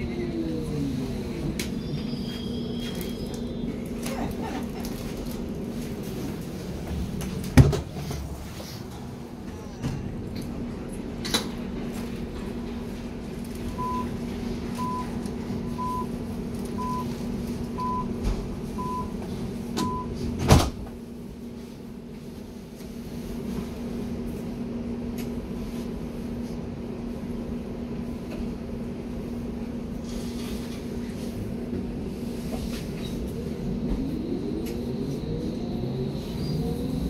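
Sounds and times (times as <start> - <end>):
train hum: 0.0 - 37.0
door-closing warning beeps: 17.8 - 18.1, 18.8 - 19.2, 19.8 - 20.2
sliding doors shutting with thump: 20.4 - 20.9.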